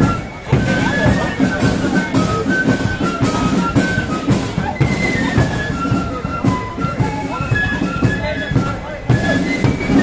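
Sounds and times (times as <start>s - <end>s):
flute melody: 0.0s - 10.0s
marching drums beating: 0.0s - 10.0s.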